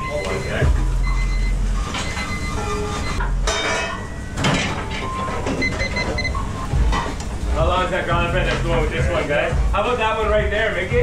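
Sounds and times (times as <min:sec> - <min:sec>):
short electronic beeps: 0:00.0 - 0:03.2, 0:05.0 - 0:06.7
extraction fan and burner rumble: 0:00.0 - 0:11.0
clatter of pans and plates: 0:03.4 - 0:06.0.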